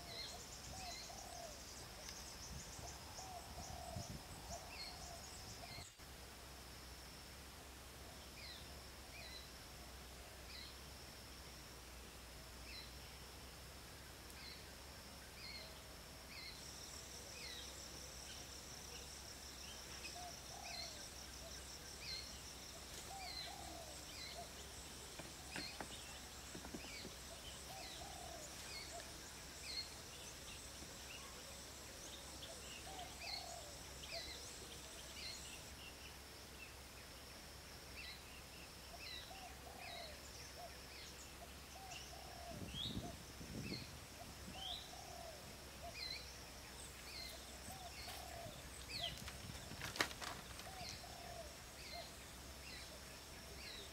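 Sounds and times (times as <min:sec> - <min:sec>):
high insect drone: 0:00.0 - 0:53.9
bird chirping: 0:15.3 - 0:36.2.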